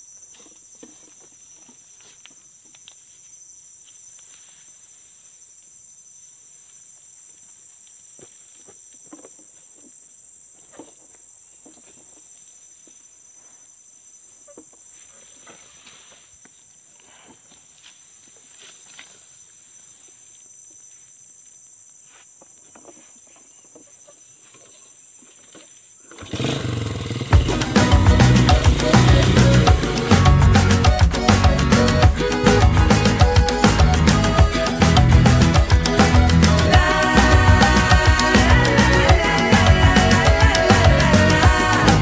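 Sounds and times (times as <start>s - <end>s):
faint rustles: 14.5s - 20.5s
high-pitched insect drone: 27.2s - 42.0s.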